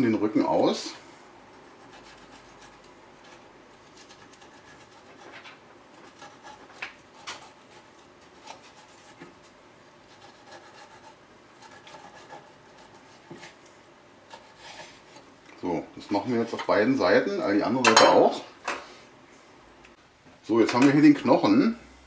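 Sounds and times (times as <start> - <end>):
knife scraping along bones: 1.6 - 15.3.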